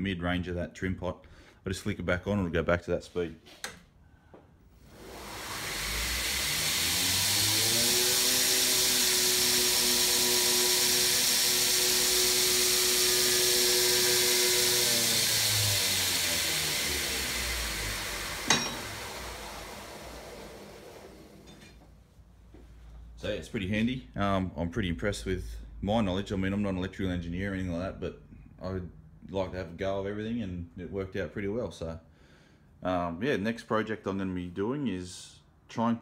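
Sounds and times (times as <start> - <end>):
belt grinder motor running: 4.8 - 21.6.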